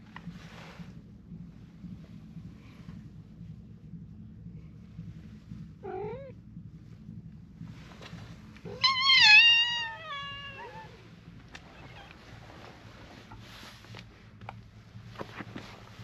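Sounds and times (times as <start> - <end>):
cats meowing: 8.7 - 12.2.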